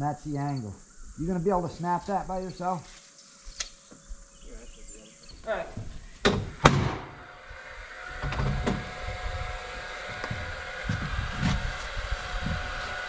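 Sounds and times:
sharp knocks: 6.2 - 7.2
engine running with whine: 6.2 - 13.0.

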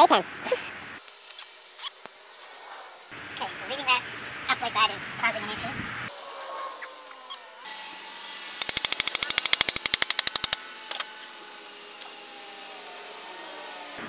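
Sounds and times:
rapid sharp clicks: 8.6 - 10.6.

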